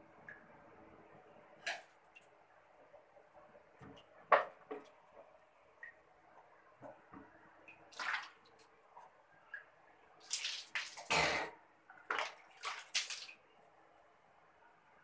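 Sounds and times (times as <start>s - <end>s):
water splashing: 7.7s - 8.7s, 9.5s - 11.1s, 12.0s - 13.4s.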